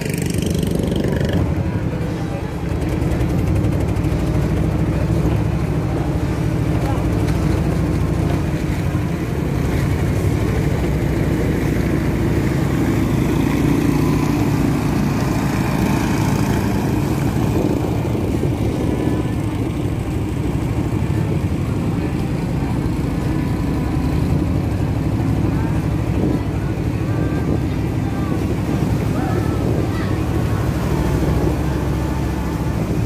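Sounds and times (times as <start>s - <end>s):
boat engine running: 0.0s - 33.0s
water noise: 0.0s - 33.0s
wind noise: 14.6s - 23.2s, 25.6s - 33.0s.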